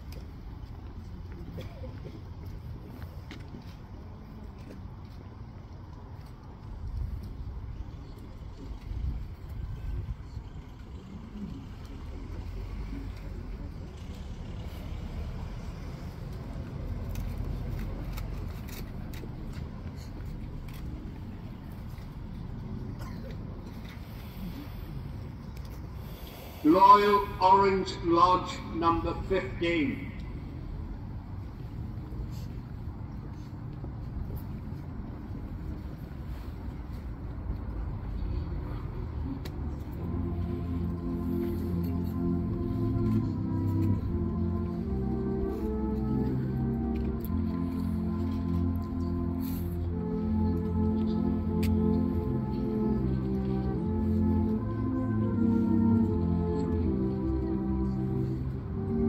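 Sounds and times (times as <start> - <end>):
low outdoor rumble: 0.0 - 59.0
held musical notes: 39.8 - 59.0.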